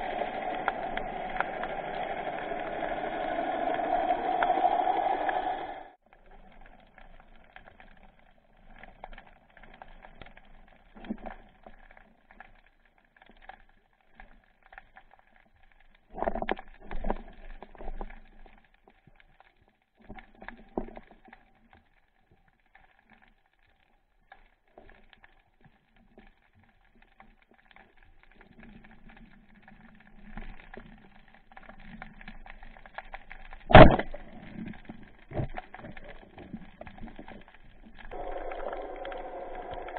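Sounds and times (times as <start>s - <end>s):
faint underwater clicks and knocks: 6.0s - 39.9s
faint steady hum: 38.1s - 39.9s.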